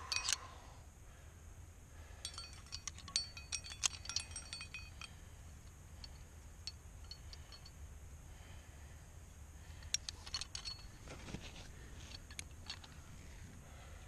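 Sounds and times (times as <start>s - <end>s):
metal climbing gear clinking: 0.0s - 0.6s, 2.2s - 7.8s, 9.6s - 13.2s.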